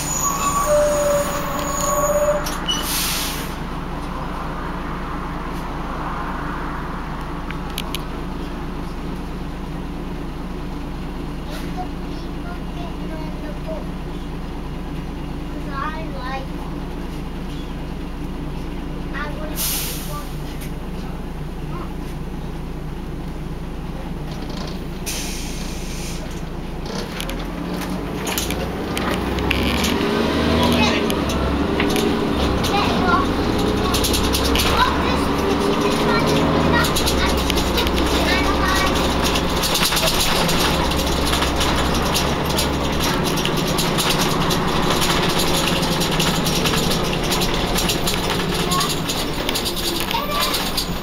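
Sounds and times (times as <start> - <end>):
bus diesel engine idling: 0.0 - 51.0
hiss of released air: 2.8 - 3.6, 19.6 - 20.2, 25.1 - 26.3
knocks and rattles: 26.8 - 51.0.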